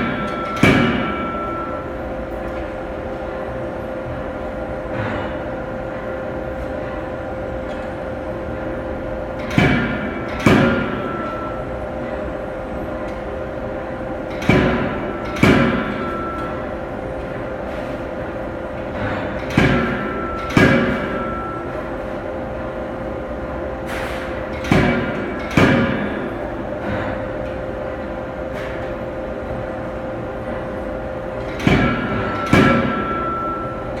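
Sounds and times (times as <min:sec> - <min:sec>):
metallic ringing: 0:00.0 - 0:02.2, 0:19.7 - 0:22.4, 0:31.7 - 0:34.0
steady machine hum: 0:00.0 - 0:34.0.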